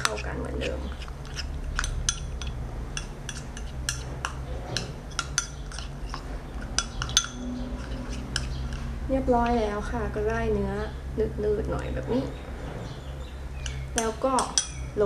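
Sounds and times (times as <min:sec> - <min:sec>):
metal spoon clinking bowl: 0:00.0 - 0:09.6, 0:13.6 - 0:15.0.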